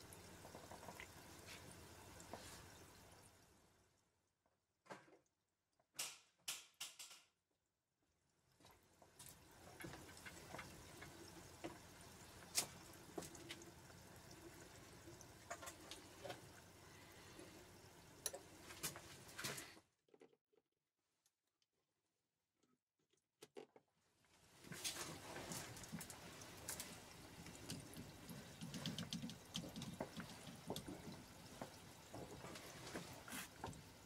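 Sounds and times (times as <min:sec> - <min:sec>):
frying crackles and pops: 0:00.0 - 0:03.5, 0:08.6 - 0:19.7, 0:24.4 - 0:34.0
oil bubbling and sizzling: 0:00.0 - 0:04.0, 0:08.4 - 0:19.7, 0:24.4 - 0:34.0.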